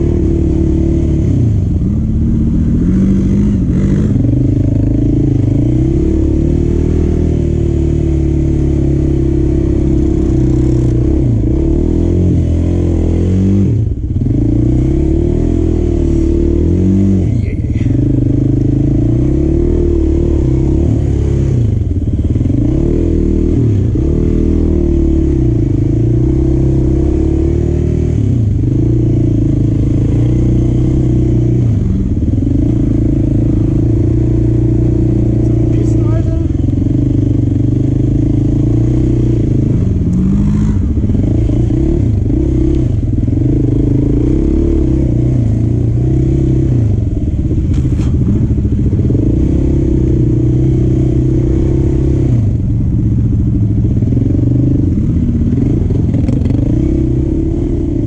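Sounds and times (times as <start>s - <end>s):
vehicle engine revving: 0.0s - 58.0s.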